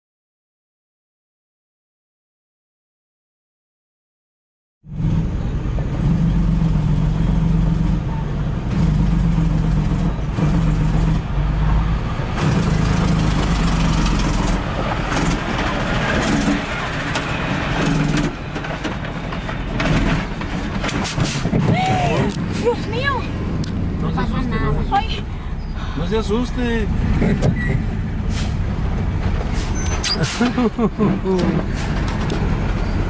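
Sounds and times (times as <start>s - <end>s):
engine and road rumble: 4.8s - 33.0s
truck passing: 4.9s - 33.0s
rattles and knocks: 12.4s - 21.9s, 31.0s - 33.0s.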